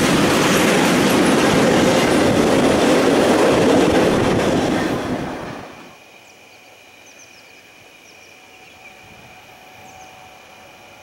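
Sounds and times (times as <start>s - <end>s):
thin insect drone: 5.4s - 11.0s.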